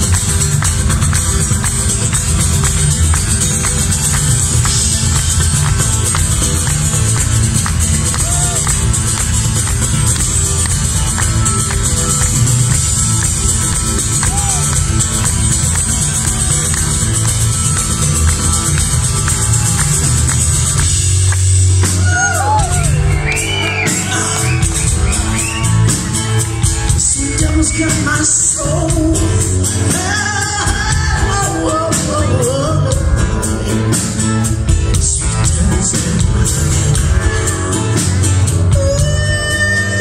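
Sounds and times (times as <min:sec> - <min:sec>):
live rock band playing: 0:00.0 - 0:40.0
woman singing: 0:27.0 - 0:33.4, 0:38.7 - 0:40.0.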